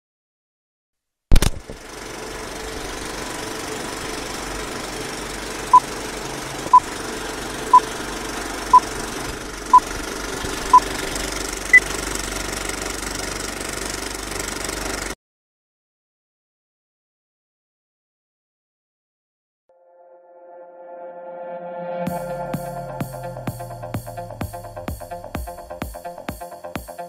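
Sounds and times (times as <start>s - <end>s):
sharp click: 1.3s - 1.8s
film projector rattle: 1.4s - 15.2s.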